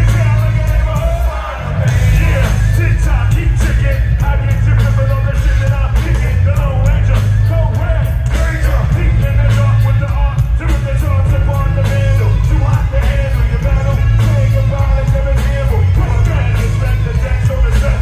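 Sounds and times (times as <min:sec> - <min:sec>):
bass-heavy hip-hop beat: 0:00.0 - 0:18.0
voices rapping and shouting: 0:00.0 - 0:18.0.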